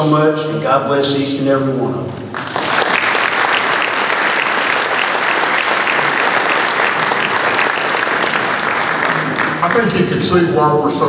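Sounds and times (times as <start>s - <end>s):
audience applauding: 2.3s - 10.7s.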